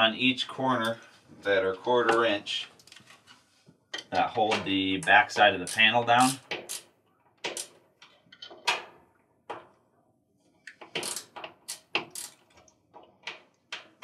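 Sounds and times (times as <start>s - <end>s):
hand tool clicking on screws: 10.8s - 12.4s.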